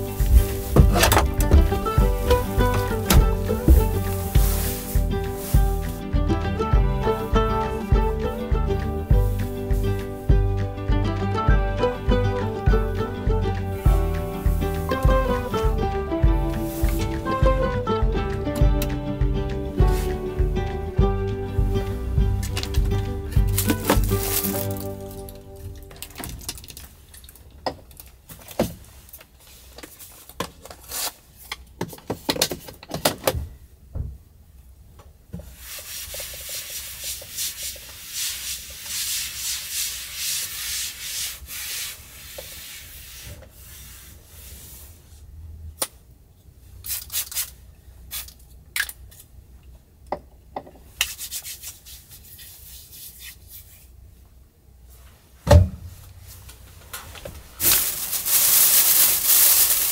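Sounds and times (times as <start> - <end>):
hand rubbing tabletop: 0.0 - 6.2, 13.7 - 17.6, 35.5 - 45.1
clicks and rustles of small items: 23.4 - 33.2, 56.9 - 59.9.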